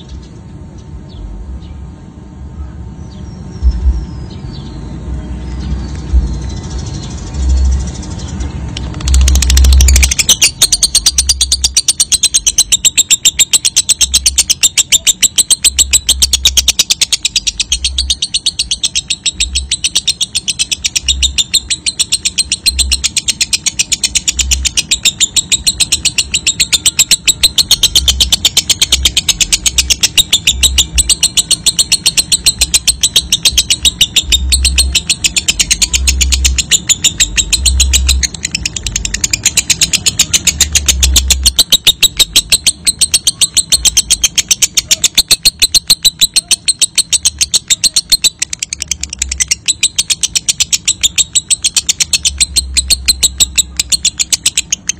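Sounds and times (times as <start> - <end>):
low thuds: 3.6 - 4.1, 6.0 - 6.5
lovebird shrill chatter: 6.2 - 54.9.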